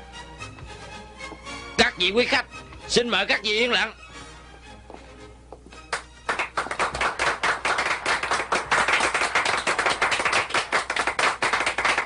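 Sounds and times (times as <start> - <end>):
crowd applauding: 5.9 - 12.0.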